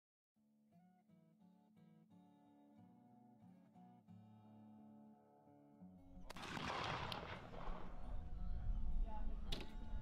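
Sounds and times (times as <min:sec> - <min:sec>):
strummed guitar music: 0:00.7 - 0:06.3.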